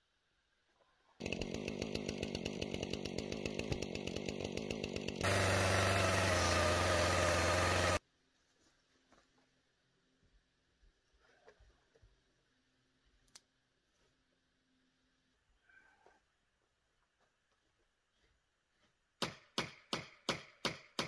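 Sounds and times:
chainsaw running: 1.2 - 8.0.

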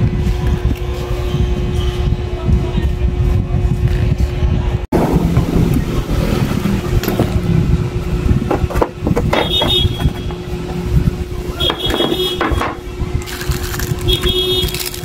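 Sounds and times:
low rumble with hum: 0.0 - 15.0
plastic box clicking and squeaking: 13.2 - 15.0.

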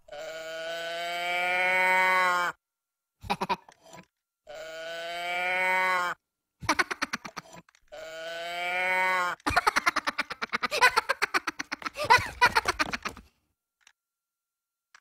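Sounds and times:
moo box toy mooing: 0.1 - 2.6, 4.5 - 6.2, 7.9 - 9.4
high cartoon giggling: 3.2 - 4.0, 6.6 - 7.7, 9.4 - 13.3.

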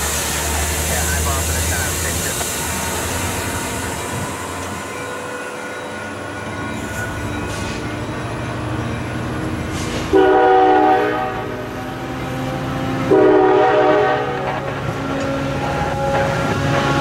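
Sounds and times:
train horn blasts: 10.0 - 11.8, 12.6 - 17.0.

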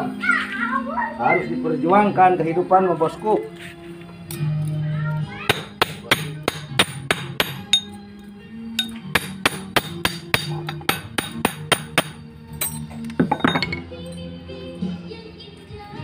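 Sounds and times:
background music: 0.0 - 16.0
hammer striking steel punch: 5.5 - 8.0, 8.8 - 13.8.

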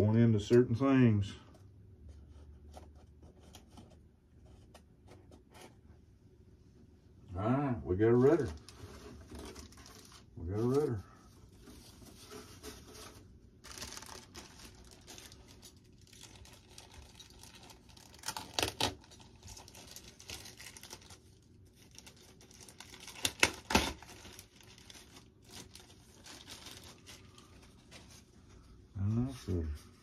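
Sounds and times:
plastic bag rustling: 8.1 - 28.7.

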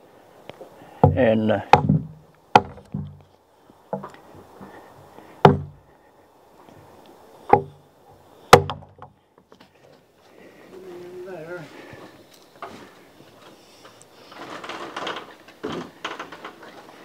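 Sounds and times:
sharp knocks on wooden beam: 1.0 - 3.2, 5.4 - 5.8, 7.5 - 7.8, 8.5 - 9.2.

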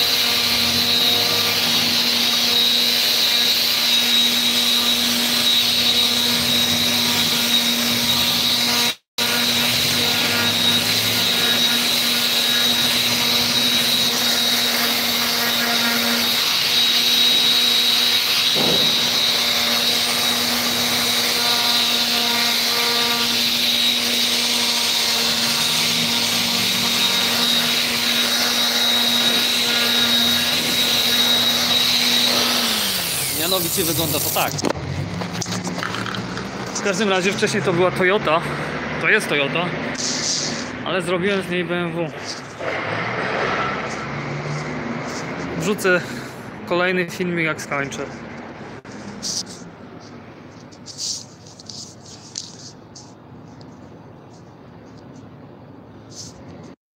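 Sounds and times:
sprayer motor hum: 9.2 - 34.8
paint spray hissing: 33.3 - 34.6.

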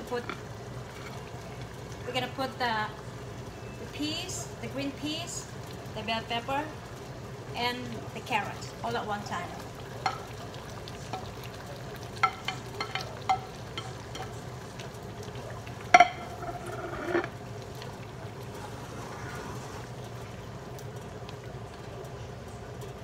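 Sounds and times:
stew simmering: 0.0 - 23.0
spatula scraping a pan: 16.0 - 17.4.

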